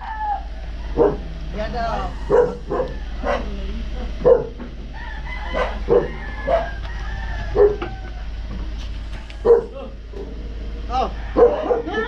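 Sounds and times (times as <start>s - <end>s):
rooster crowing: 0.0s - 9.7s, 10.3s - 12.0s
low hum: 0.0s - 12.0s
dog barking: 0.1s - 1.4s, 2.1s - 3.6s, 4.2s - 4.6s, 5.4s - 6.8s, 7.5s - 7.9s, 9.4s - 10.3s, 11.3s - 12.0s.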